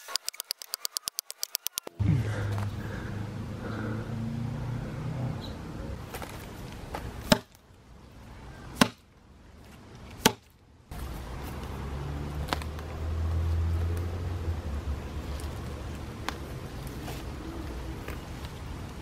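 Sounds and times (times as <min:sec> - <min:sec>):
axe striking wood: 0:07.2 - 0:07.6, 0:08.8 - 0:09.1, 0:10.2 - 0:10.5.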